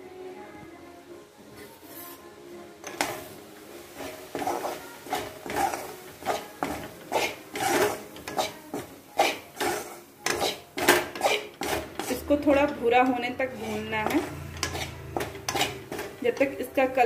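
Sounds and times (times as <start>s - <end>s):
metal spoon scraping a pan: 2.8s - 3.3s, 3.9s - 16.7s.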